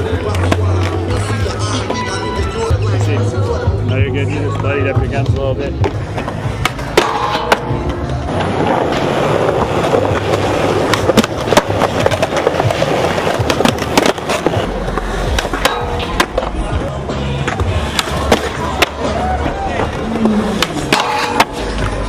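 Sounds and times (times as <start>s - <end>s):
skateboards clacking: 0.0s - 3.8s, 4.4s - 22.0s
skateboard wheels rolling on concrete: 0.0s - 22.0s.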